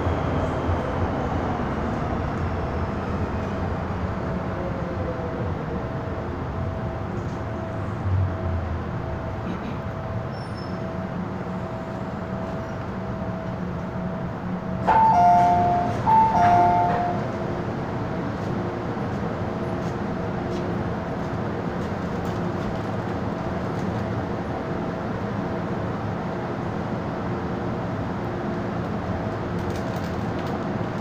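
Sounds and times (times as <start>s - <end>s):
train rumbling in a tunnel: 0.0s - 31.0s
two-note tone: 14.9s - 17.3s.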